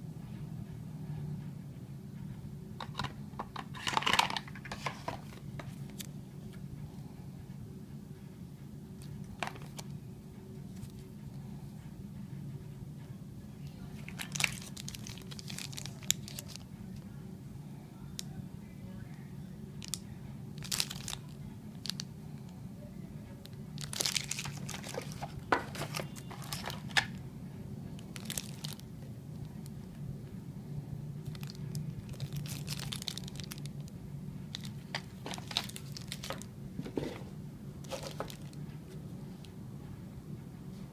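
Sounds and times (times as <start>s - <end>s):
steady low hum: 0.0s - 40.9s
plastic wrap crinkling: 14.0s - 16.6s, 20.6s - 22.1s, 23.8s - 27.2s, 28.0s - 28.8s, 31.2s - 33.9s, 34.5s - 37.2s, 37.8s - 38.6s
cardboard rustling and clicking: 23.9s - 27.1s, 34.9s - 37.3s, 37.9s - 38.6s.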